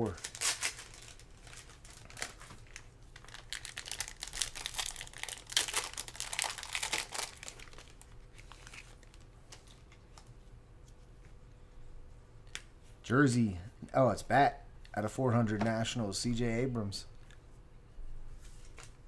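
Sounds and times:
foil wrapper crinkling: 0:00.0 - 0:10.3.

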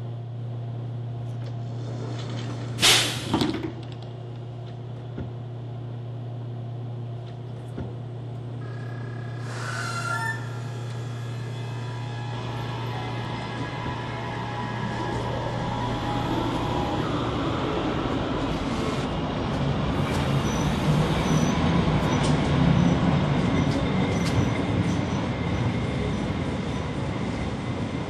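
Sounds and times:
train wheels rumbling: 0:08.1 - 0:28.0.

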